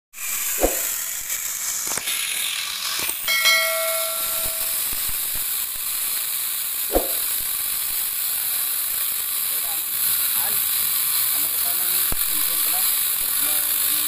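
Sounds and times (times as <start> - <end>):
chainsaw cutting wood: 0.2 - 14.0
short ringing chime: 3.3 - 5.0.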